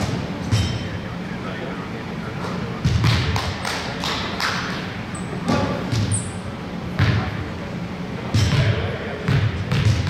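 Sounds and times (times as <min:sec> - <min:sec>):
shoe squeaks: 0:05.1 - 0:06.5.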